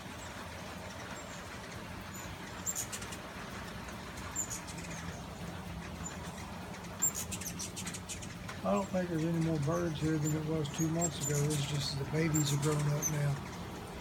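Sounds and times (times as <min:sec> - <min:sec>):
rain hiss: 0:00.0 - 0:14.0
hummingbird squeaky chips: 0:02.2 - 0:03.2, 0:04.3 - 0:05.3, 0:05.9 - 0:13.6.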